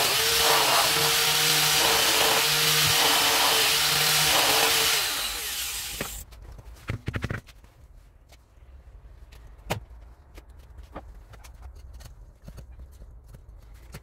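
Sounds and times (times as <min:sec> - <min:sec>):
electric power tool running: 0:00.0 - 0:06.2.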